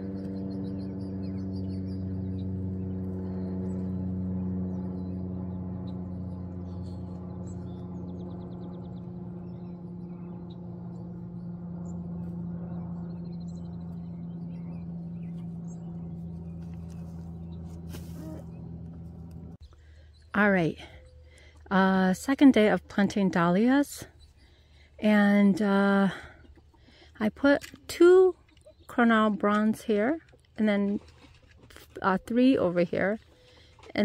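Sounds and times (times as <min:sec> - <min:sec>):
small birds chirping: 0:00.0 - 0:04.1, 0:05.8 - 0:21.7
low mechanical hum: 0:00.0 - 0:34.0.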